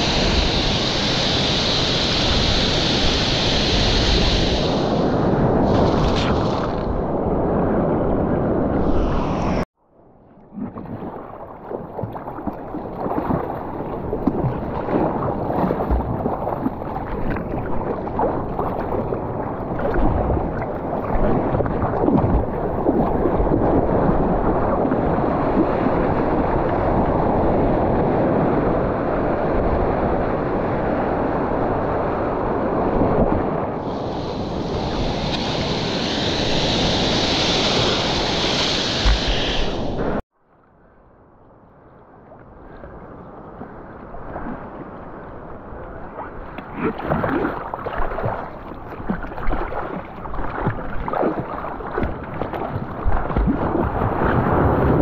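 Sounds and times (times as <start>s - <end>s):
high hiss: 0.0s - 5.2s, 33.8s - 40.2s
ocean surf washing: 0.0s - 9.7s, 12.4s - 40.2s, 42.6s - 55.0s
wind on microphone: 0.0s - 9.7s, 10.4s - 40.2s, 42.5s - 55.0s.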